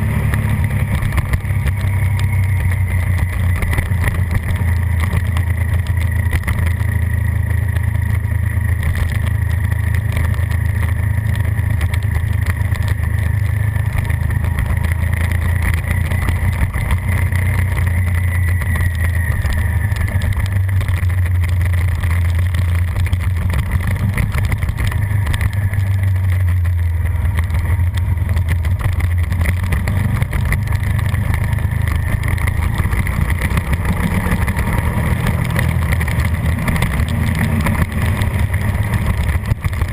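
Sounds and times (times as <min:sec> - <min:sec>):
motorcycle engine running hard: 0:00.0 - 0:39.9
wind rush on microphone: 0:00.0 - 0:39.9.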